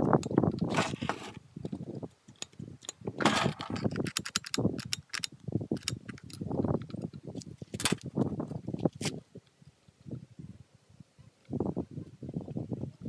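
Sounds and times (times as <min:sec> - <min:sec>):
small parts clicking and rattling: 0:01.6 - 0:07.2.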